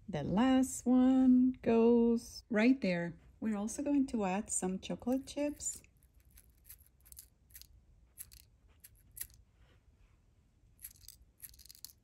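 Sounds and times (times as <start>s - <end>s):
tiny pieces clicking on plastic plate: 5.1s - 9.4s, 10.8s - 12.0s.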